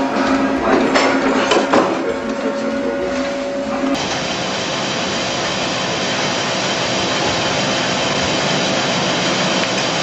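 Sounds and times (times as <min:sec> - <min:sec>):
loud steady rushing noise: 0:03.9 - 0:10.0.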